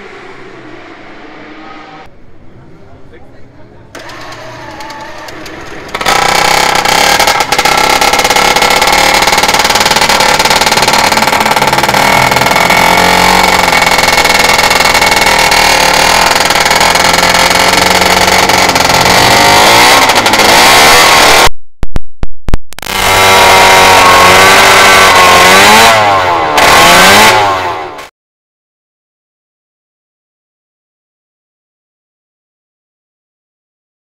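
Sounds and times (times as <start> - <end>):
two-stroke racing engine revving: 4.0 - 21.5, 22.8 - 28.1.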